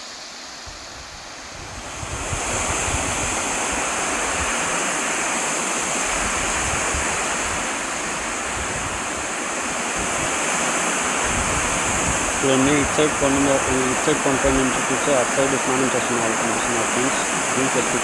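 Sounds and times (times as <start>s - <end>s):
wind buffeting microphone: 0.8s - 4.7s, 6.1s - 14.6s
waterfall rushing: 1.3s - 18.0s.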